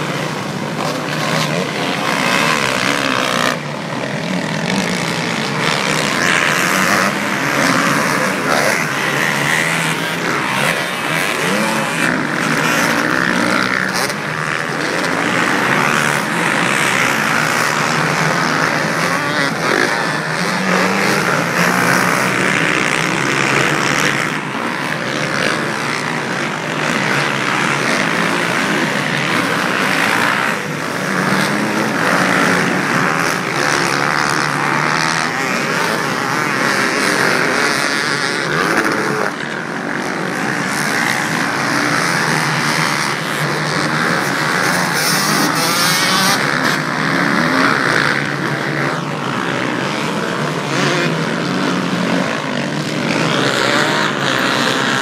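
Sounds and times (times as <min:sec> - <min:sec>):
motocross bike engines revving: 0:00.0 - 0:55.0.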